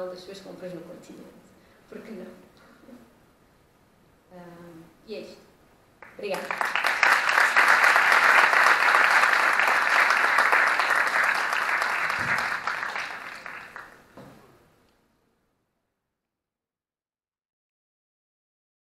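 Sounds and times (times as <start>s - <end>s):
audience applauding: 6.0s - 14.1s.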